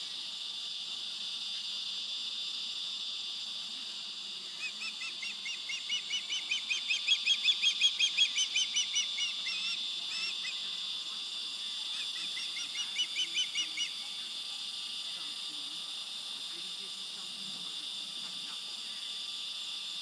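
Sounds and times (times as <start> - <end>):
insects droning: 0.0 - 20.0
bird chick whistled chirps: 4.8 - 10.4.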